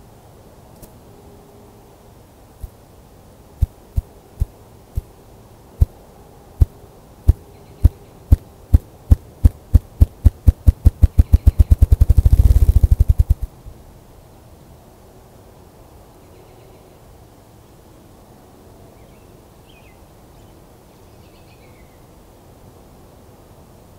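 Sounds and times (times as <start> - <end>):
grouse wings drumming: 9.5 - 13.5.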